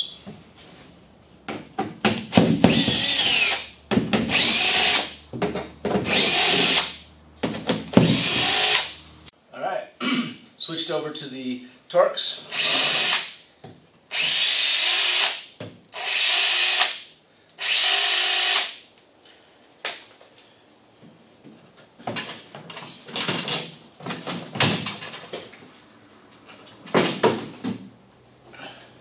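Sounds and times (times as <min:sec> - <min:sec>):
cordless drill driving bolts: 0:02.2 - 0:05.2, 0:06.0 - 0:07.0, 0:07.8 - 0:09.0, 0:12.5 - 0:13.4, 0:14.1 - 0:17.0, 0:17.6 - 0:18.8
knocks and clatter of cover: 0:22.0 - 0:25.6.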